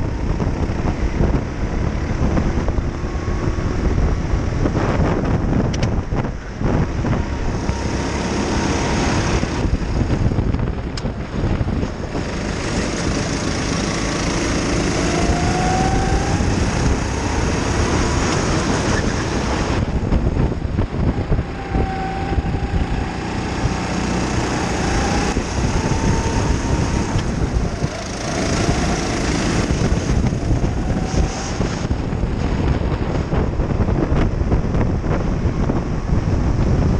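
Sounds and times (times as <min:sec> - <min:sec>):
go-kart engine racing: 0:00.0 - 0:36.9
wind and road noise: 0:00.0 - 0:36.9.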